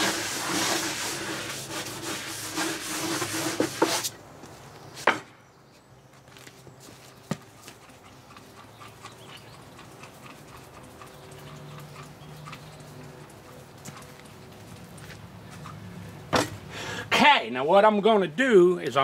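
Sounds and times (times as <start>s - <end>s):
brush scrubbing: 0.0s - 4.1s.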